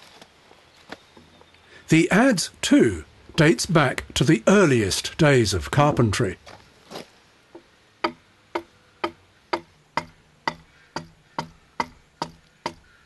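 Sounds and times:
adze chopping timber: 0:08.0 - 0:13.0.

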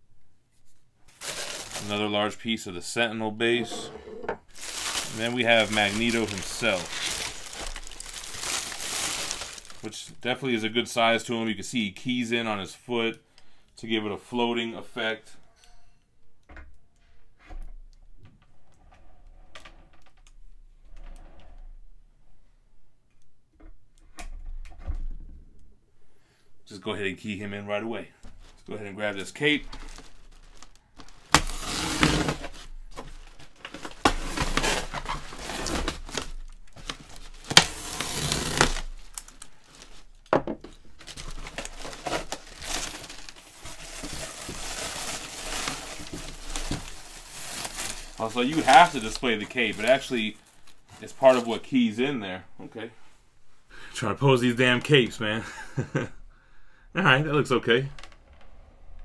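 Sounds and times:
statue and packaging handled: 0:00.6 - 0:02.5, 0:03.5 - 0:10.0, 0:28.2 - 0:52.2.

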